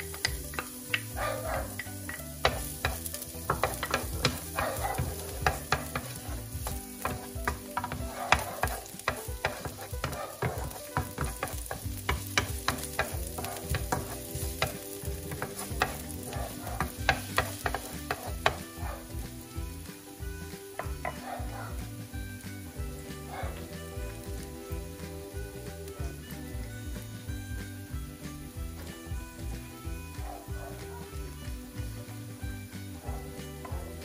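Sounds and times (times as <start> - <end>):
spatula scraping a pan: 0.0 - 19.5
garlic sizzling in oil: 0.0 - 34.0.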